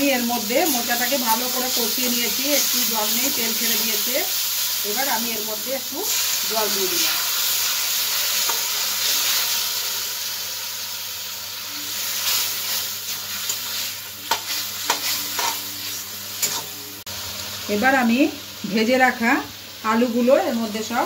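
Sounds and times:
food sizzling in a pan: 0:00.0 - 0:21.0
spatula scraping and knocking pan: 0:13.5 - 0:16.7.

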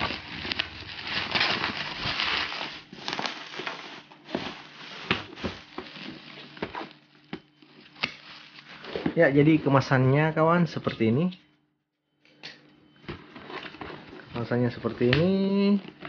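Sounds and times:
plastic packaging crinkling: 0:00.0 - 0:09.2.

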